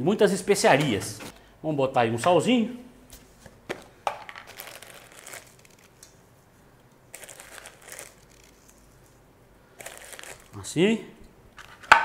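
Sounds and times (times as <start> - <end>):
salt rustling as sprinkled: 4.5 - 5.9, 7.1 - 9.2, 9.8 - 10.6.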